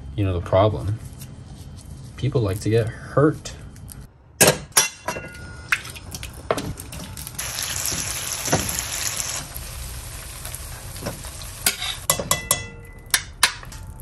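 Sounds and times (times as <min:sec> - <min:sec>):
peppers sizzling in a frying pan: 0:06.7 - 0:12.1.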